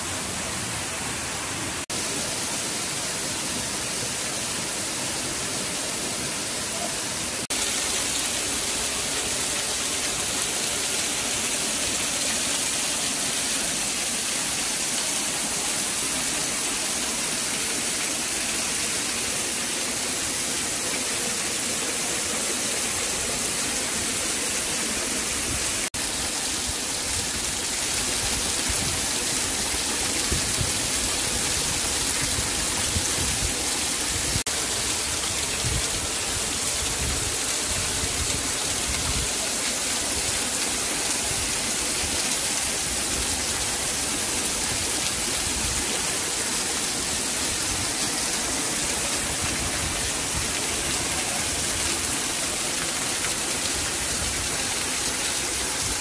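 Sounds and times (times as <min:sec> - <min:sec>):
waterfall hissing: 0:00.0 - 0:56.0.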